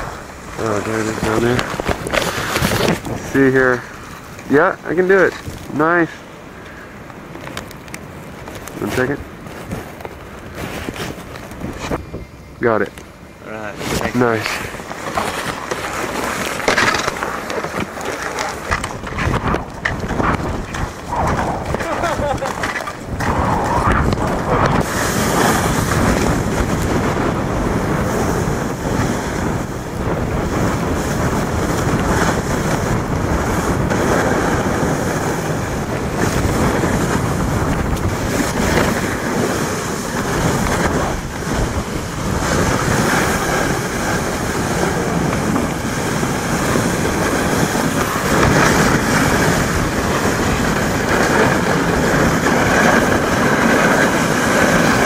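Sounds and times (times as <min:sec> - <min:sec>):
snowboards scraping over snow: 0:00.0 - 0:12.8, 0:13.5 - 0:55.0
wind rushing over microphone: 0:00.0 - 0:55.0.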